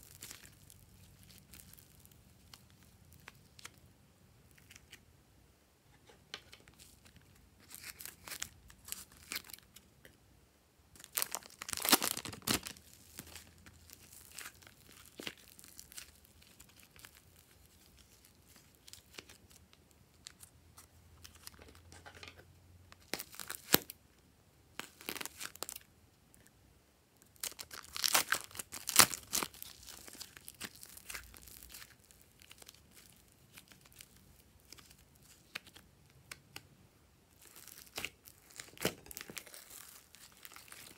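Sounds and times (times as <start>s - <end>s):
slime crackling when squeezed: 11.0s - 19.4s, 27.4s - 35.8s, 37.4s - 40.9s.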